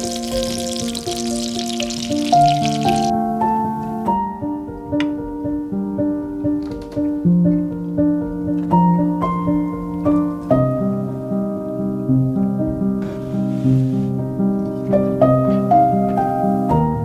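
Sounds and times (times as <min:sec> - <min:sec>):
oil sizzling under frying food: 0:00.0 - 0:03.1
slow piano music: 0:00.0 - 0:17.0.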